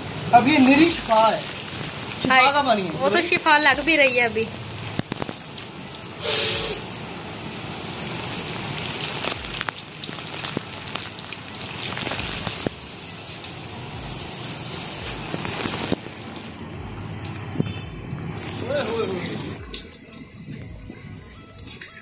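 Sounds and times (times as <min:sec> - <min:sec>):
heavy rain on concrete roof: 0:00.0 - 0:22.0
drops ticking: 0:00.8 - 0:06.1, 0:09.0 - 0:18.8.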